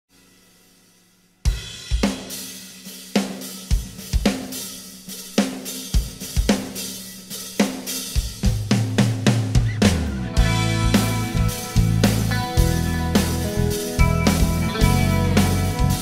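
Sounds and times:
drum kit with cymbal hits: 0:00.1 - 0:16.0
bass guitar: 0:09.0 - 0:16.0
held chord: 0:10.2 - 0:16.0.

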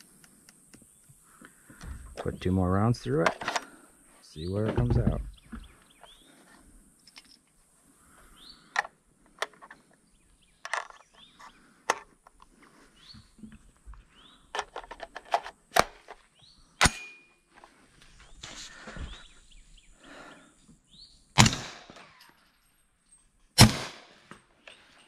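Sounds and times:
suppressed rifle shots with echo: 0:16.8 - 0:17.3, 0:21.4 - 0:22.2, 0:23.6 - 0:24.3.

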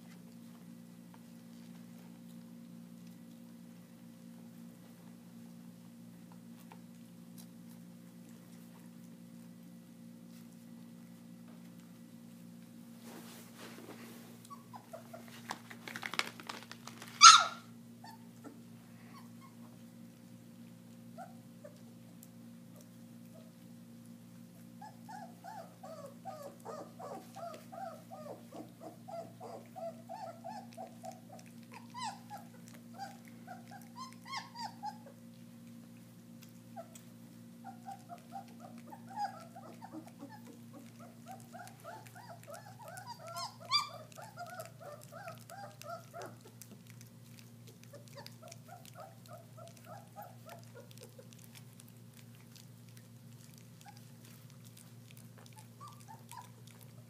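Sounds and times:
puppies whimpering: 0:14.4 - 0:15.4, 0:17.2 - 0:19.7, 0:24.8 - 0:35.3, 0:36.7 - 0:46.8, 0:47.5 - 0:57.0.

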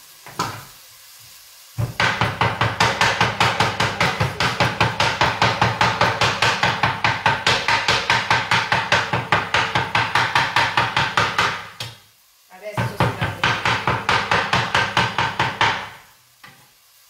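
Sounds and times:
knife chopping meat on wooden board: 0:01.8 - 0:12.0, 0:12.8 - 0:16.0.

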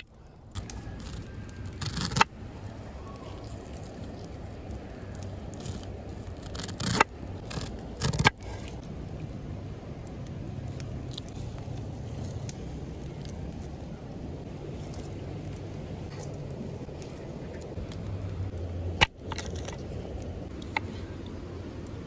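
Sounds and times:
light scrapes and ticks: 0:00.0 - 0:02.3, 0:03.0 - 0:08.9, 0:10.6 - 0:13.8
low rumble: 0:00.0 - 0:22.0.

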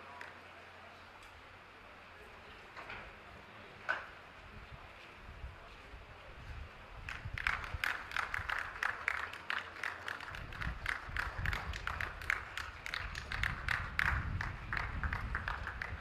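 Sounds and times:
small audience clapping: 0:07.0 - 0:16.0.

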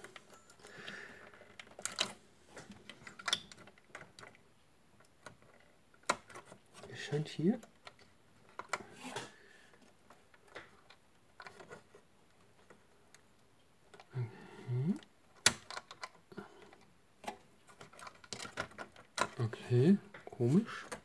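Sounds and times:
person murmuring: 0:14.1 - 0:15.1.

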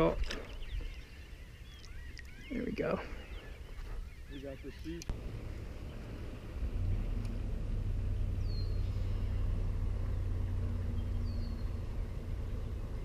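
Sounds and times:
steady low rumble: 0:04.9 - 0:13.0.

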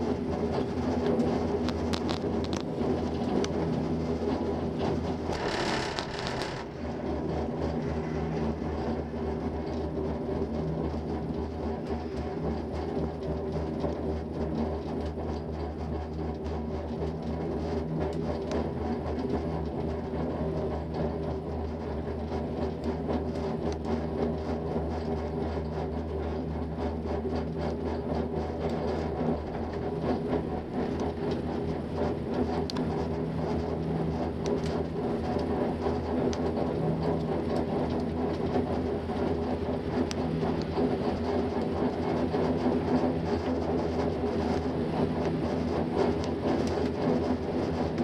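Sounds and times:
gondola cabin hum and rumble: 0:00.6 - 0:07.8
faint clicks: 0:05.3 - 0:06.7.

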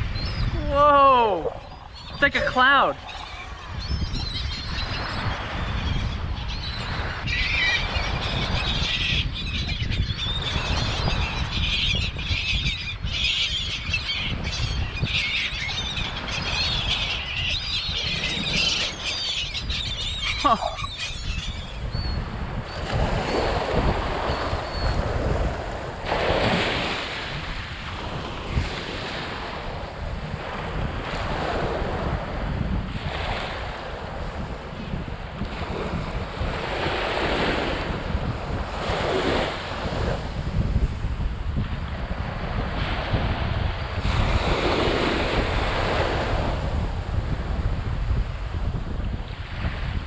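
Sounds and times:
gulls calling: 0:00.0 - 0:25.0
wind rumbling on microphone: 0:00.0 - 0:50.0
small waves washing onto sand: 0:22.2 - 0:50.0.

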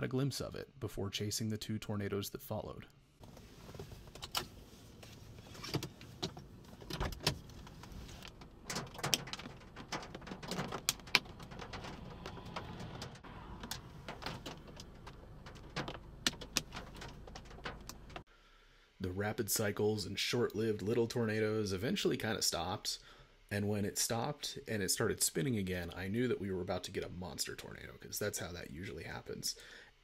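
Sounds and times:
sharp clicks and knocks: 0:05.6 - 0:18.3.

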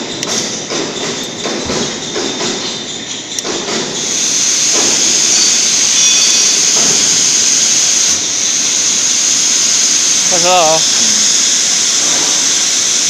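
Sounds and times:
loud hiss of flowing gas: 0:03.8 - 0:13.0.

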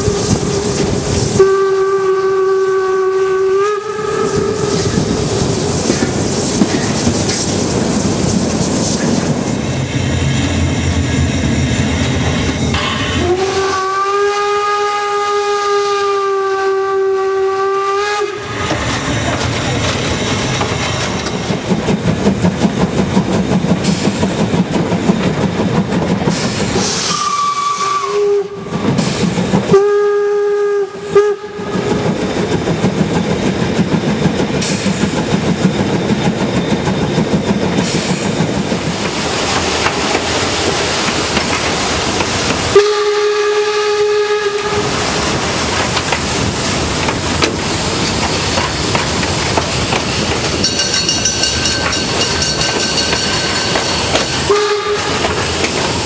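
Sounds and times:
steam locomotive whistle: 0:00.0 - 0:05.0, 0:12.8 - 0:18.6, 0:26.8 - 0:32.0, 0:42.7 - 0:45.1, 0:54.2 - 0:55.6
moving train rattling: 0:00.0 - 0:56.0.

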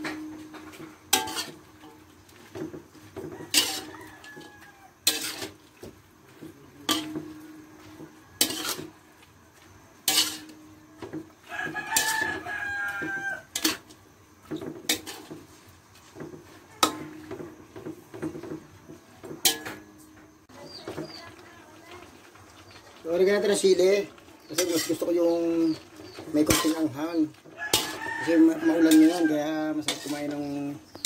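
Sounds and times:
spatula scraping a wok: 0:00.0 - 0:31.0
rooster crowing: 0:03.2 - 0:05.0, 0:11.4 - 0:13.6, 0:27.0 - 0:30.2.

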